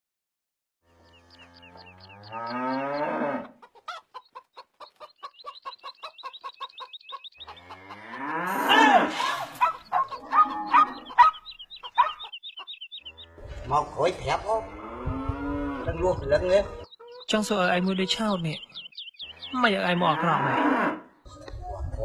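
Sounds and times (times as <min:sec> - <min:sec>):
cow mooing: 0:00.8 - 0:03.5, 0:07.6 - 0:09.5, 0:10.1 - 0:11.1, 0:14.6 - 0:16.2, 0:19.4 - 0:21.1
chickens clucking: 0:01.1 - 0:20.3, 0:21.2 - 0:22.0.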